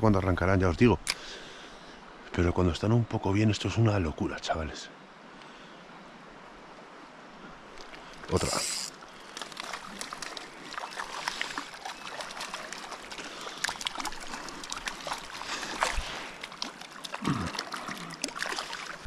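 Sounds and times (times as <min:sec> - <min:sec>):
river water rushing: 0:05.9 - 0:19.0
water splashing and dripping: 0:07.7 - 0:19.0.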